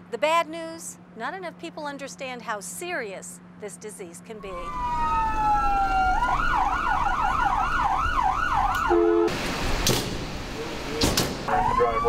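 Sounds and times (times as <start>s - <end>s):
ambulance siren yelp: 4.4s - 9.3s, 11.5s - 12.0s
siren wail rising: 4.4s - 9.3s, 11.5s - 12.0s.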